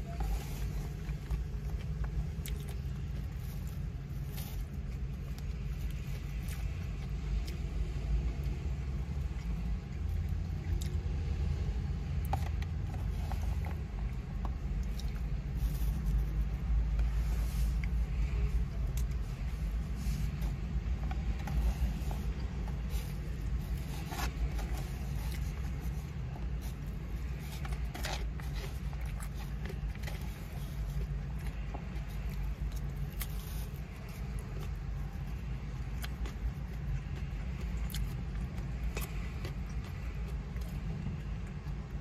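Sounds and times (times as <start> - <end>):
eating sounds: 0.0 - 42.0
low rumble inside car: 0.0 - 42.0
plastic fork scraping foam container: 19.8 - 32.0.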